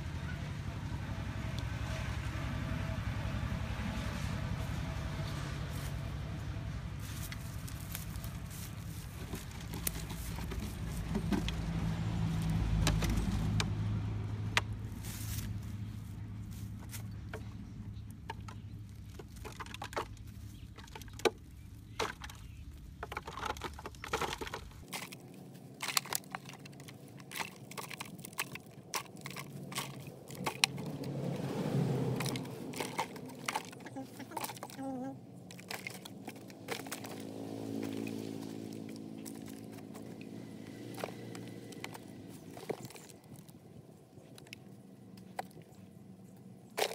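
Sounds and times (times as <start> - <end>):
hands scraping dry soil: 7.0 - 11.7, 14.8 - 17.8, 18.6 - 43.6
plastic bottle crackling: 7.1 - 13.8, 18.1 - 31.2, 32.0 - 43.5.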